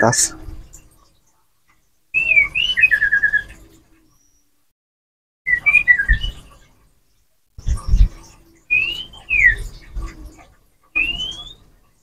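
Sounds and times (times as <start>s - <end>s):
songbird whistling song: 2.1s - 4.6s, 5.5s - 6.7s, 8.6s - 9.9s, 10.9s - 11.7s.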